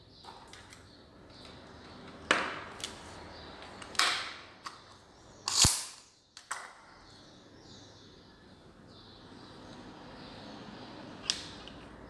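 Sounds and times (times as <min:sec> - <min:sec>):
tape measure snapping and clicking: 0:05.4 - 0:06.6.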